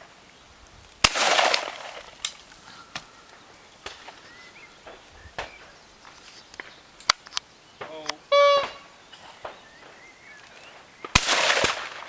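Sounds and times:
shotgun shot with echo: 1.0s - 2.1s, 11.0s - 12.0s.

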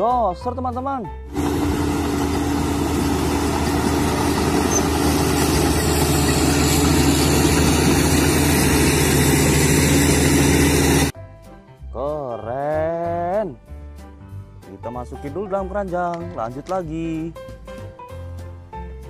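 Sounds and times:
bulldozer diesel engine droning: 1.3s - 11.1s.

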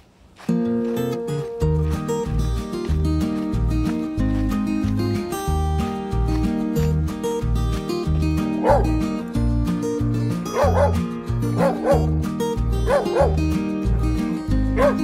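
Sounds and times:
ukulele music with bass line: 0.4s - 15.0s
dog barking: 8.6s - 9.0s, 10.5s - 11.0s, 11.6s - 12.2s, 12.8s - 13.4s, 14.7s - 15.0s.

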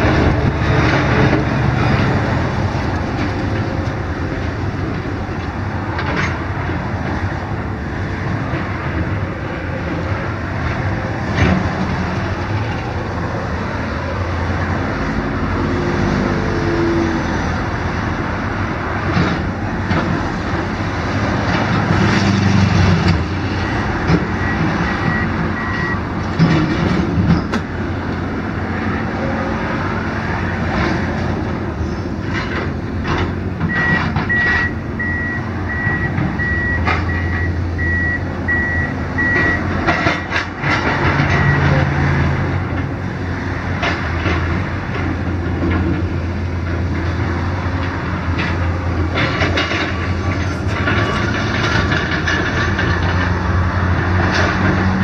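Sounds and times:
excavator diesel engine: 0.0s - 55.0s
road traffic: 0.0s - 55.0s
backup alarm beeping: 24.4s - 26.0s, 33.7s - 39.7s.

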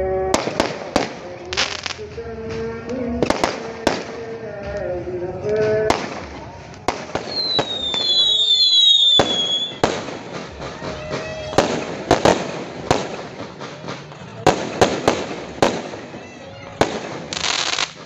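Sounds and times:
fireworks bangs and crackling: 0.0s - 18.0s
falling firework whistles: 7.1s - 12.4s.

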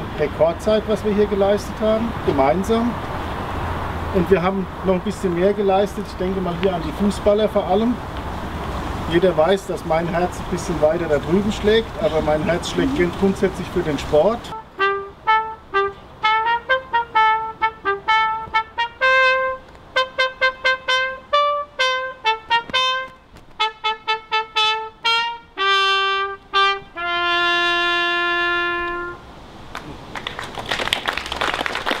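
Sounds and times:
solo brass instrument tune: 14.4s - 29.4s
applause: 29.7s - 32.0s.

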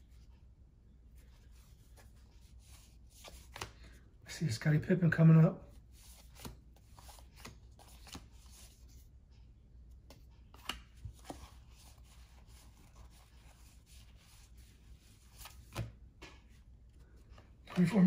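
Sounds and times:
cardboard cards rustling: 6.0s - 8.9s, 10.0s - 18.0s.

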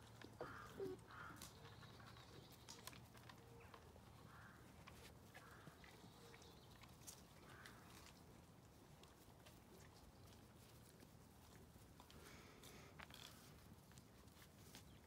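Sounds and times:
faint bird calls: 0.3s - 6.6s.

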